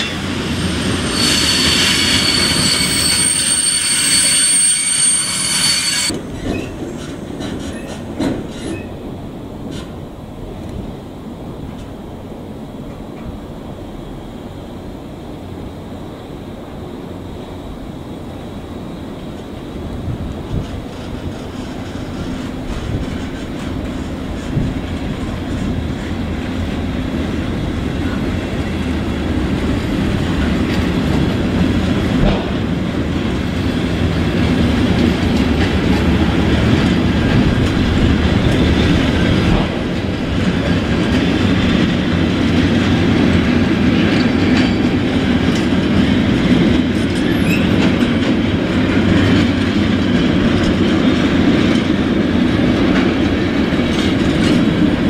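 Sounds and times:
train wheels clattering over rails: 6.0s - 10.8s, 19.2s - 55.0s.

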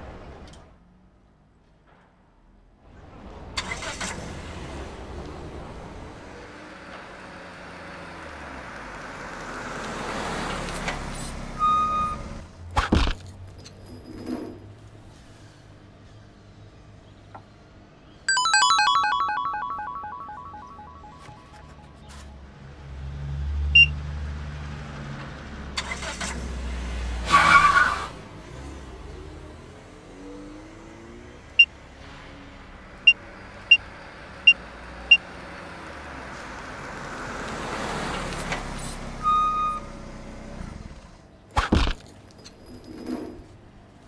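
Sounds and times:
short chime: 18.3s - 22.0s
short electronic beeps: 18.3s - 22.1s.

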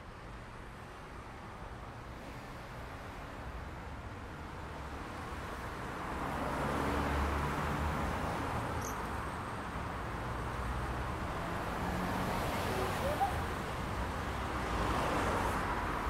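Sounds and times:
steady traffic hum: 0.0s - 16.0s
vehicle passing by: 10.5s - 13.6s.

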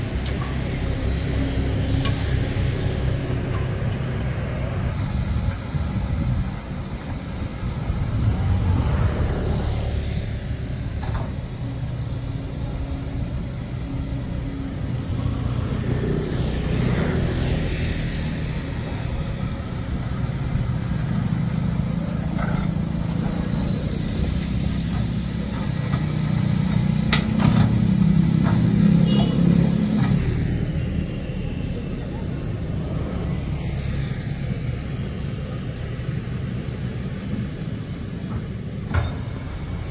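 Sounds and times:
excavator diesel engine running: 0.0s - 29.2s.

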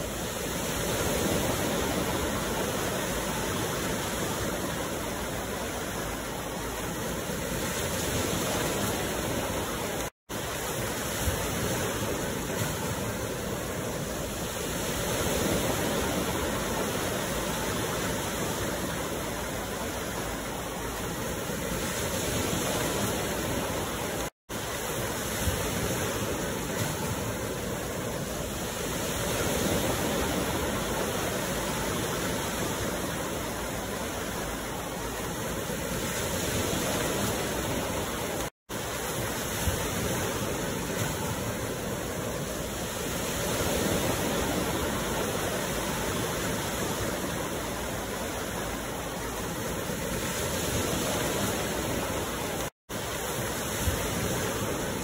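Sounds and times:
ocean waves breaking on beach: 0.0s - 55.0s.

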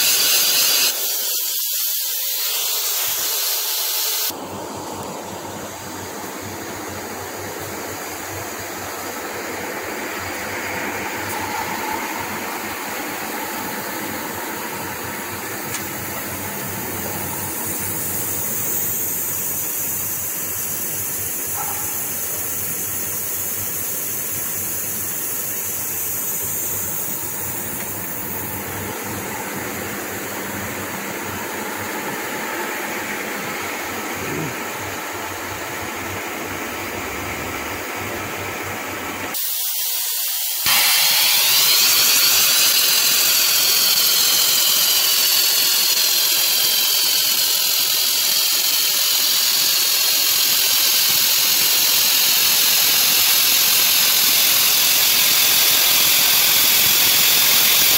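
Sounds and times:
spray gun air hissing: 0.0s - 4.4s, 15.5s - 29.0s, 39.3s - 57.9s.

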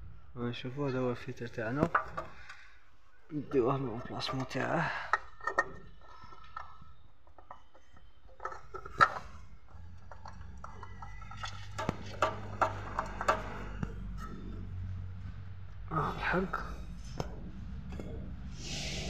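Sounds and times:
low steady hum: 0.0s - 19.0s
clicks and knocks of metal parts: 1.7s - 2.6s, 3.5s - 14.5s.

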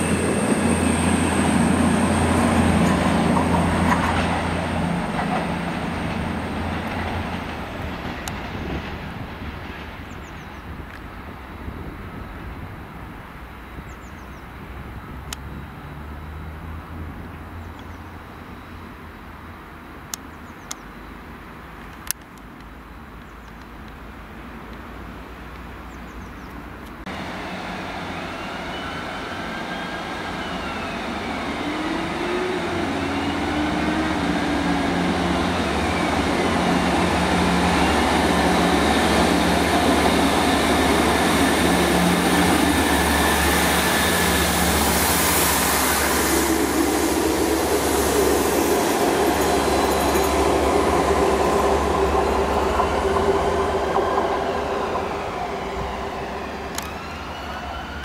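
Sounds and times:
rail rumble: 0.0s - 14.0s, 27.0s - 58.0s.

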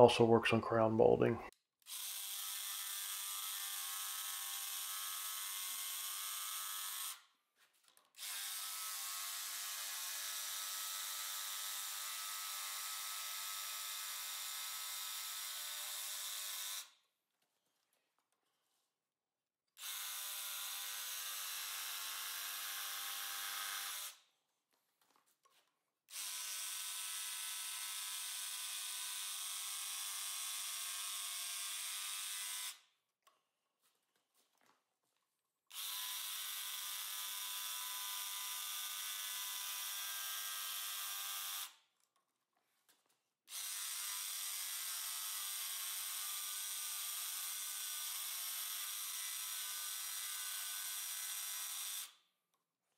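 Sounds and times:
jigsaw cutting wood: 1.9s - 7.3s, 8.2s - 16.9s, 19.8s - 24.2s, 26.1s - 32.8s, 35.7s - 41.8s, 43.5s - 52.2s.

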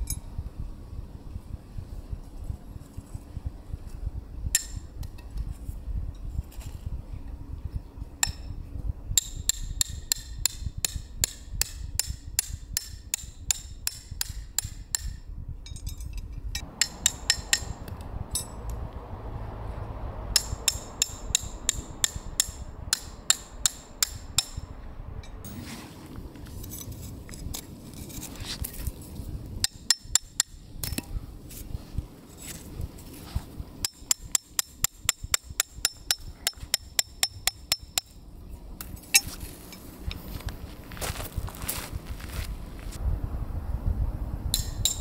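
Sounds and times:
hammer striking tent pegs: 16.6s - 17.8s.

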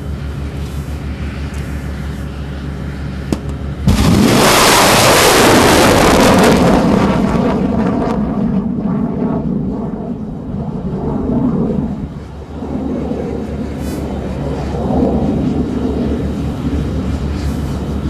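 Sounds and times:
steady low hum: 0.0s - 18.0s
rocket booster blast and roar: 3.8s - 17.0s.

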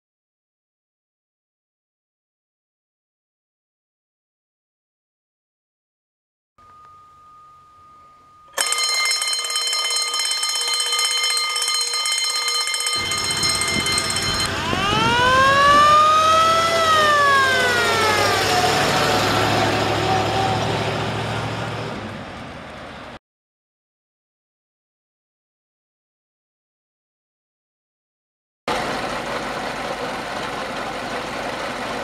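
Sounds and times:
high many-toned sound: 12.9s - 19.8s
fire engine siren wailing: 12.9s - 22.6s
rushing noise: 13.0s - 22.3s.

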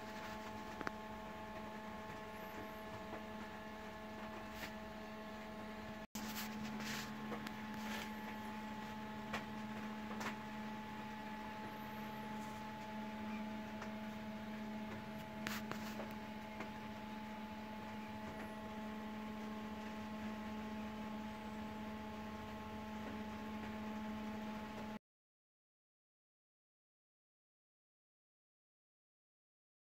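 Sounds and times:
electrical hum: 0.0s - 25.0s.

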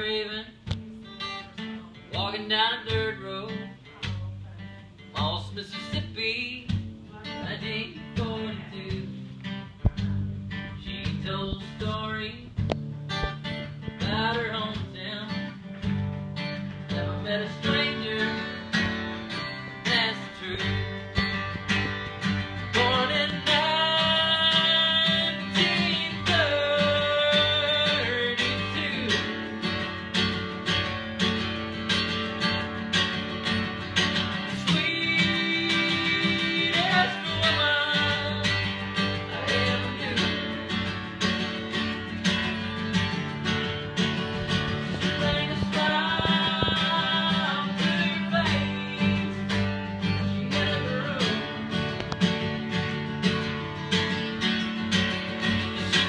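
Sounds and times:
man singing: 0.0s - 0.6s, 1.6s - 12.7s, 13.8s - 15.7s, 16.8s - 30.0s, 34.2s - 41.3s, 44.2s - 52.0s, 55.7s - 56.0s
acoustic guitar strumming: 0.0s - 56.0s.

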